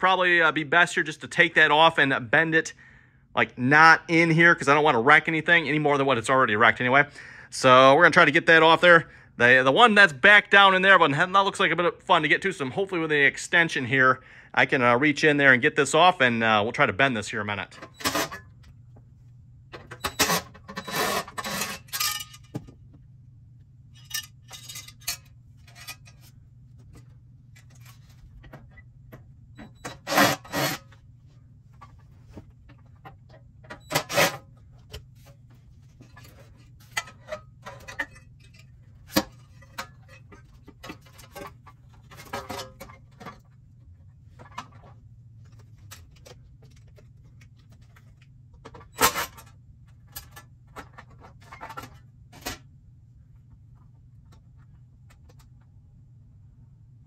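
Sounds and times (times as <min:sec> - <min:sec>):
metal parts clinking and rubbing: 0:19.8 - 0:22.6, 0:24.0 - 0:26.3, 0:33.7 - 0:43.4.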